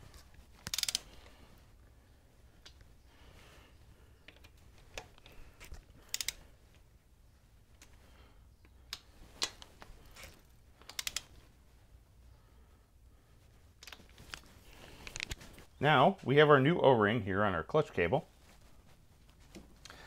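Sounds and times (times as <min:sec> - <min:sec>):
torque wrench clicking: 0:00.6 - 0:01.1, 0:06.0 - 0:06.4, 0:10.8 - 0:11.3.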